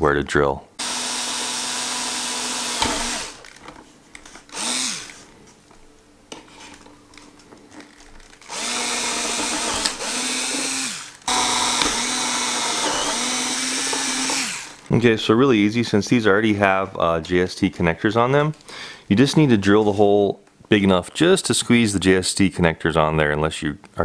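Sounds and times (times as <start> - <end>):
cordless drill boring plastic: 0.8 - 3.6, 4.5 - 5.2, 7.8 - 14.8.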